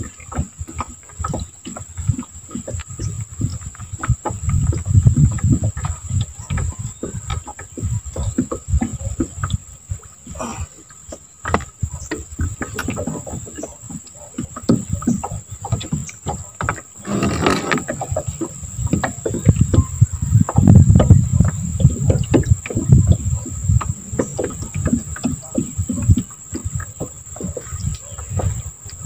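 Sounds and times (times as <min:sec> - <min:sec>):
knocks and rustles in metal boat: 0:17.0 - 0:18.1.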